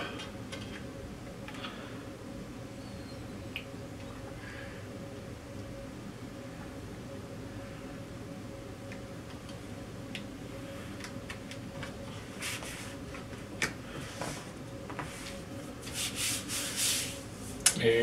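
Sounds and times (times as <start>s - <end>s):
steady low hum: 0.0s - 18.0s
hands rubbing sheet: 12.2s - 13.4s, 14.0s - 17.6s.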